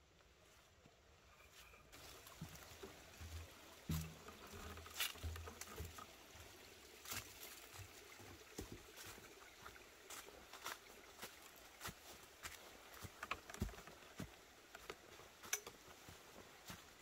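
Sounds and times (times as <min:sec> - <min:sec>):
footsteps crunching in dry leaves: 0:01.9 - 0:06.0, 0:08.8 - 0:17.0.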